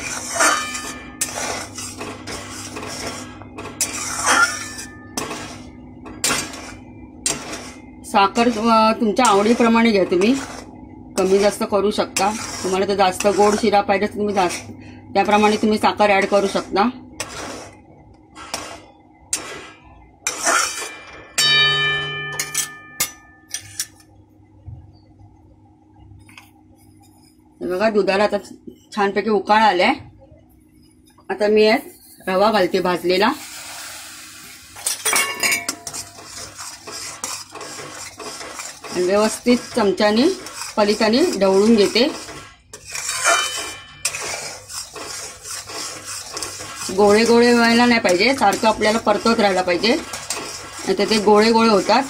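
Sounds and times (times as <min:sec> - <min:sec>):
spatula scraping a pan: 0:00.0 - 0:21.1, 0:22.2 - 0:24.0, 0:32.0 - 0:52.0
metal clang ringing: 0:20.8 - 0:23.9, 0:34.9 - 0:35.9, 0:43.3 - 0:44.1.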